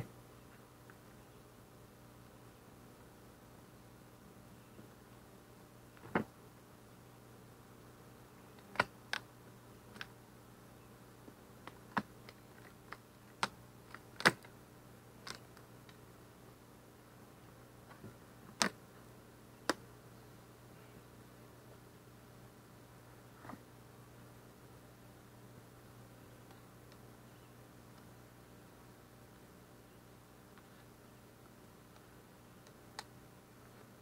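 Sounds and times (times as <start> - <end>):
faint low hum: 0.0 - 34.0.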